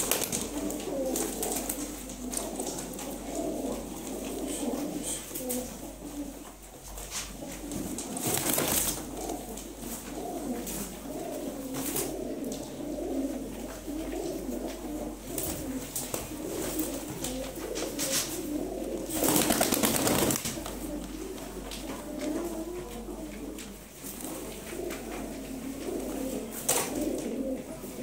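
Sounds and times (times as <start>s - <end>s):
pigeons cooing: 0.0s - 28.0s
rustling wing flurries: 8.1s - 9.4s, 19.1s - 20.8s.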